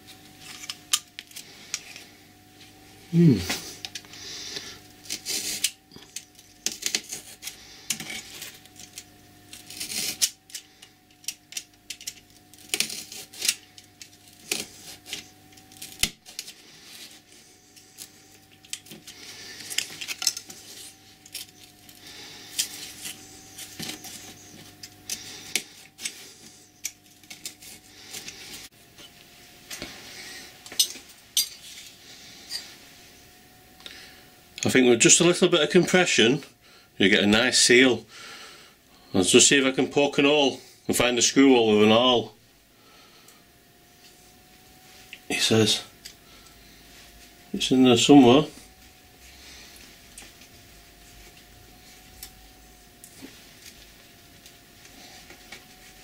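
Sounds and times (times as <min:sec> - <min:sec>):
knife scraping through felt: 0:04.5 - 0:05.8, 0:09.5 - 0:10.6, 0:12.5 - 0:28.6.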